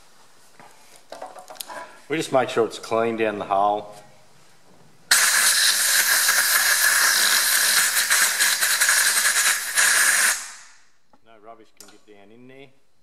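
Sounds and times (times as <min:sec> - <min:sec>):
compressed air hissing: 0:05.1 - 0:10.9.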